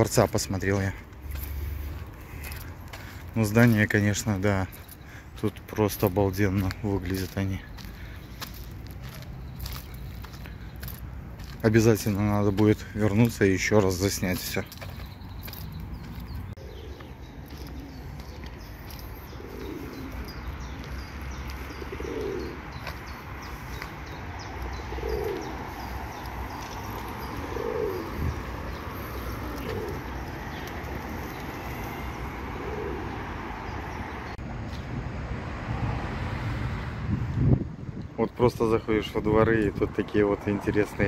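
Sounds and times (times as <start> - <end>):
pigeon cooing: 16.6 - 23.8, 24.5 - 33.5.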